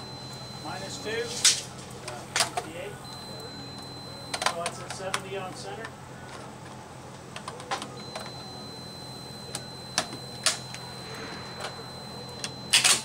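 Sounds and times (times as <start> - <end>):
faint steady high tone: 0.0 - 1.4, 2.4 - 4.9, 7.9 - 13.0.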